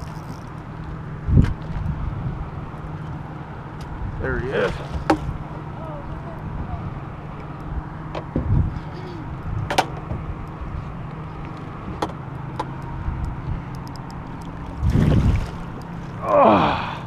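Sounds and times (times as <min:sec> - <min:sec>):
boat motor humming: 0:00.0 - 0:17.0
sharp clicks: 0:12.6 - 0:14.6.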